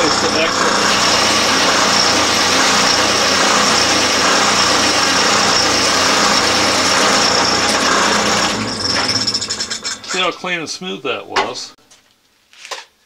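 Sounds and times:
drill press cutting wood: 0.0 - 10.4.

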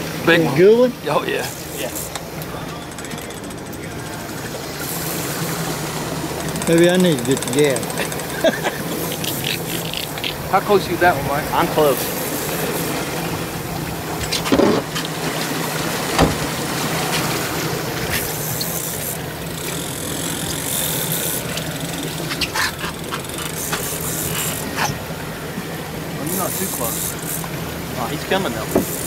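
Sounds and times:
boat engine running: 0.0 - 29.0
water hissing against hull: 0.0 - 29.0
knocks: 16.2 - 16.5.

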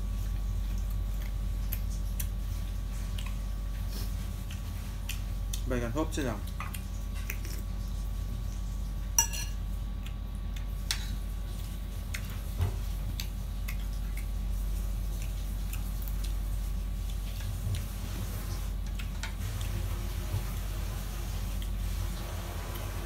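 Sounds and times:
steady low hum: 0.0 - 23.0
spoon clinking on ceramic plates: 9.2 - 9.6.

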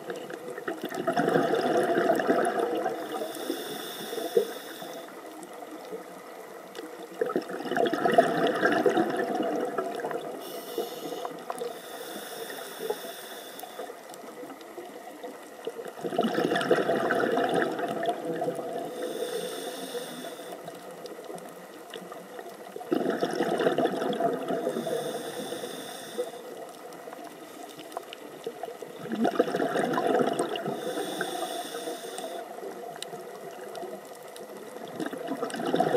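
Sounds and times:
exhaled bubbles underwater: 0.0 - 12.0, 13.8 - 27.4, 28.3 - 35.9
regulator hissing inhale: 2.9 - 5.3, 10.4 - 14.1, 18.8 - 20.7, 24.6 - 26.6, 30.6 - 32.8.

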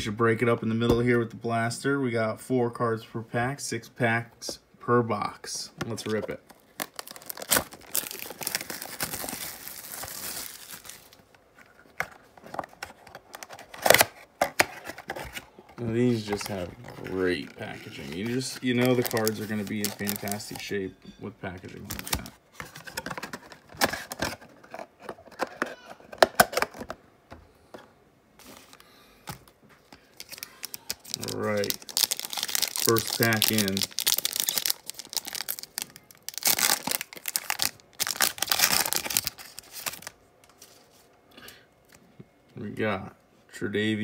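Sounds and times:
packaging crinkling and tearing: 6.5 - 15.5, 16.1 - 20.6, 29.9 - 40.9.

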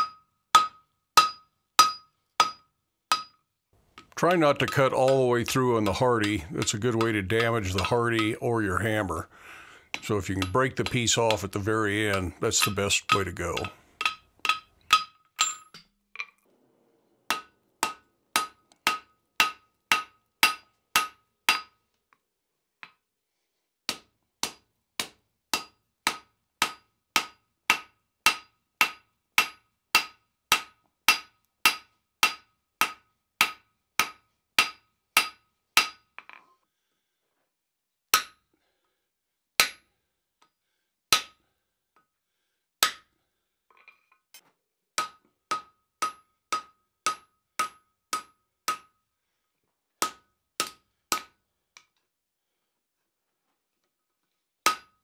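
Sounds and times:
hammer clanging on anvil: 0.0 - 3.4, 4.0 - 8.5, 10.0 - 16.3, 17.3 - 21.7.

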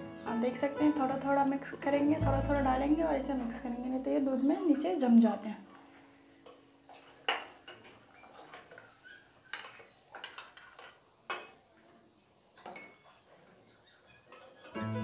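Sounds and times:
spoon clinking and scraping pot: 6.5 - 11.6, 14.3 - 14.8.

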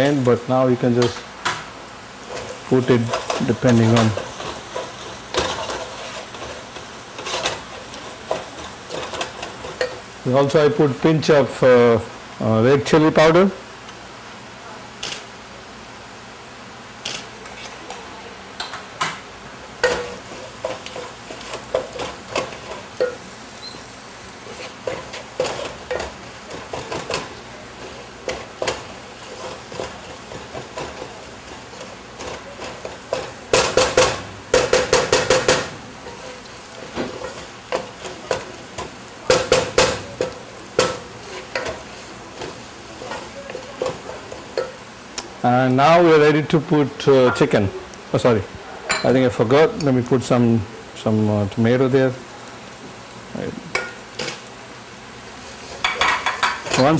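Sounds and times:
low steady sizzle: 0.0 - 56.9
spoon stirring and scraping in pan: 1.0 - 10.3, 19.7 - 45.4, 55.2 - 56.9.

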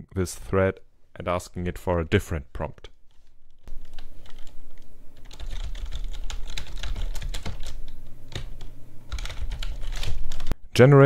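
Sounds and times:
typing on computer keyboard: 3.7 - 4.6, 5.2 - 10.6.

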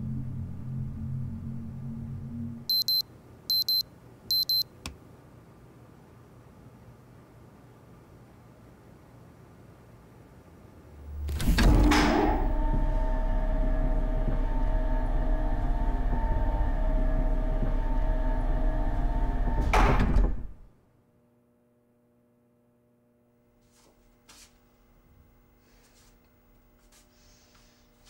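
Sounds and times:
elevator machinery humming: 11.0 - 20.6
sliding door rushing sweep: 11.0 - 20.6.

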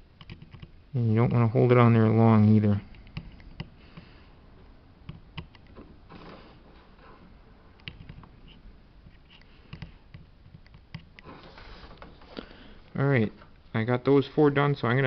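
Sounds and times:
faint sharp clicks and taps: 2.8 - 6.0, 7.8 - 11.3.

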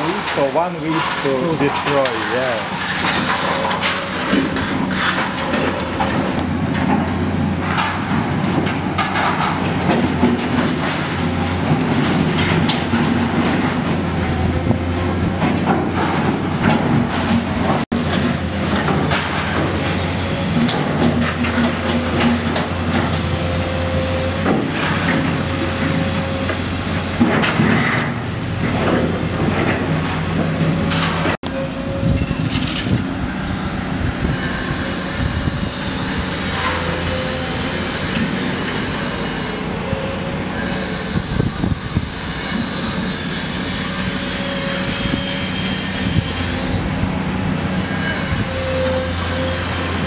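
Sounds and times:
debris clanking and knocking: 0.0 - 14.1, 24.4 - 33.1.

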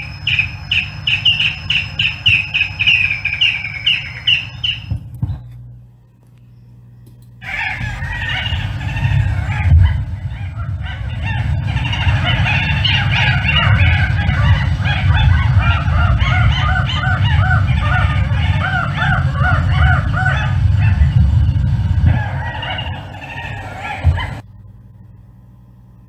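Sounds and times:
repeated short arched bird calls: 0.0 - 5.0, 7.4 - 21.2
birds calling: 0.0 - 24.4.

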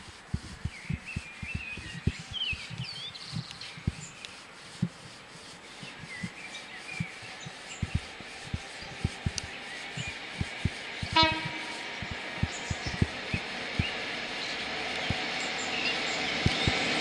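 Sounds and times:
low thumps: 0.0 - 4.1, 7.8 - 14.0
train rumbling: 7.9 - 17.0
train horn toot: 11.1 - 12.0.

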